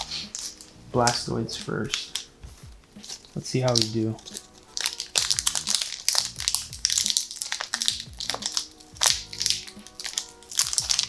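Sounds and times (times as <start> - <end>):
foil wrapper crinkling: 0.0 - 2.3, 2.9 - 11.0
background music: 0.0 - 11.0.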